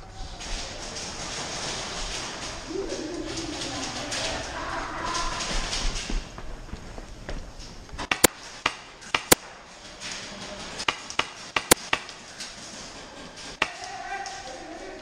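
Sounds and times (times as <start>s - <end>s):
airsoft gun shots: 8.0s - 9.4s, 10.9s - 12.2s.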